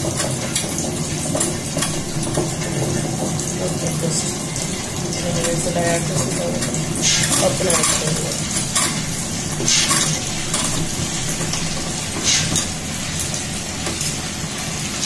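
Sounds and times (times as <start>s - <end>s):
wet grinder grinding rice: 0.0s - 15.0s.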